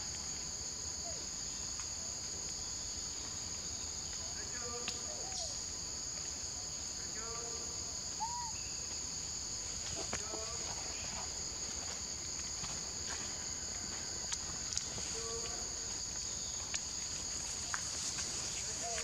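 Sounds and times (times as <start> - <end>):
insects droning in chorus: 0.0 - 19.0.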